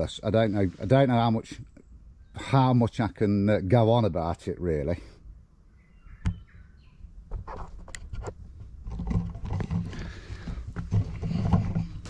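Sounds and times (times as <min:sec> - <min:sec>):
camera handling rustles and knocks: 0:07.3 - 0:12.0.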